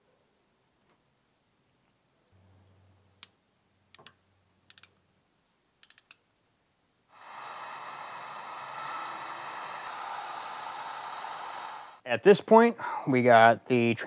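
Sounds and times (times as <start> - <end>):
ratchet crimping tool clicking: 5.8 - 6.2
heat gun blowing hiss: 7.1 - 12.1.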